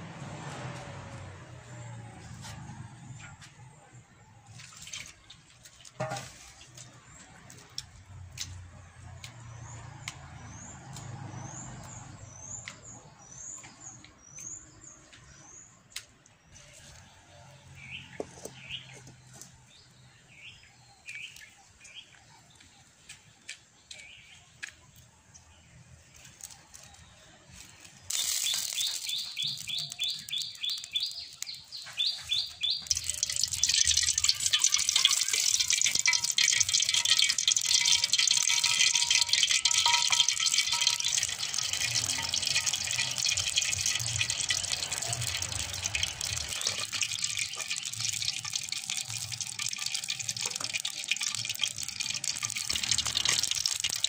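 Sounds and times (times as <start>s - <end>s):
oil glugging from bottle: 32.3s - 54.0s.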